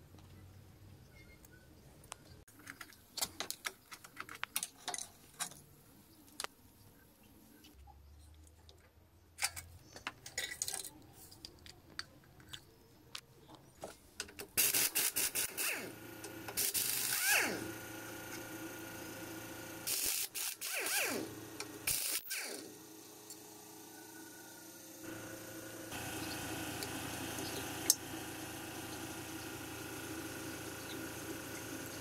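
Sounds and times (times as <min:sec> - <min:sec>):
impact wrench bursts: 0:14.6 - 0:22.7.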